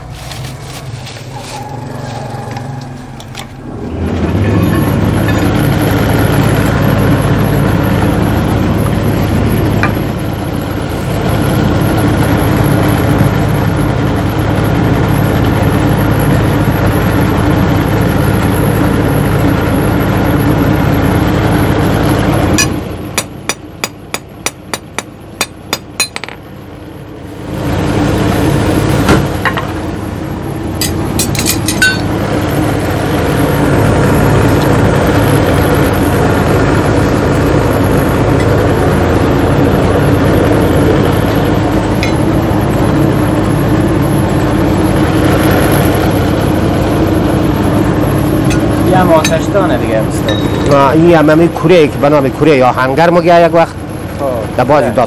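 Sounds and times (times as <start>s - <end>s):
blower motor humming: 0.0s - 55.0s.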